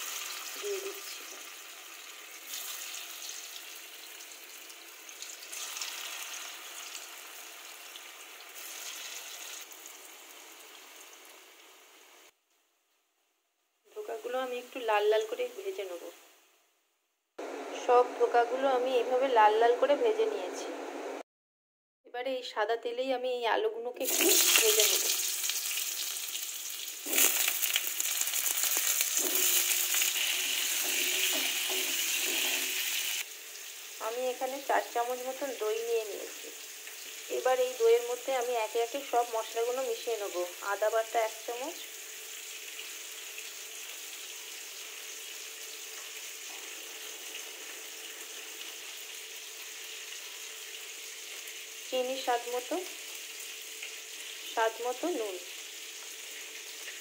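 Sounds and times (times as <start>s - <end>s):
food sizzling in hot oil: 0.0s - 12.4s, 24.0s - 57.0s.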